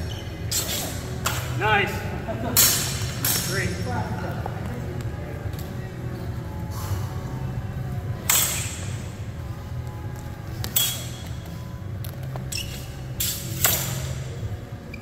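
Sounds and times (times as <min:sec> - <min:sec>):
steady low hum: 0:00.0 - 0:15.0
swords clashing with ringing clanks: 0:13.2 - 0:14.2.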